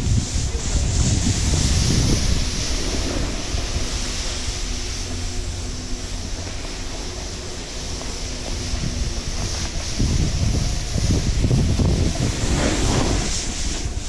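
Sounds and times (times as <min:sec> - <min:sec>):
snowboard sliding on snow: 0:00.0 - 0:14.0
wind buffeting microphone: 0:00.0 - 0:14.0.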